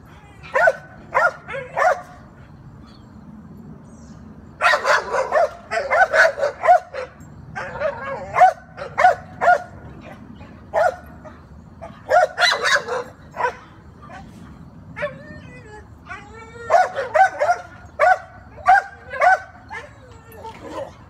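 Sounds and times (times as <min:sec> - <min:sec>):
dogs barking: 0:00.5 - 0:02.3, 0:04.6 - 0:14.4, 0:16.7 - 0:21.0.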